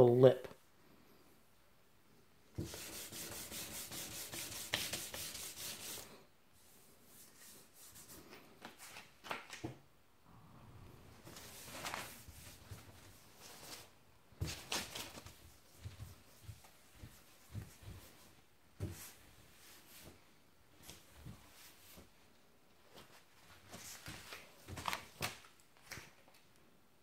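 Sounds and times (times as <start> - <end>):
cloth wiping panel: 2.6 - 8.9, 11.2 - 22.1
sandpaper strokes on metal: 2.7 - 6.1.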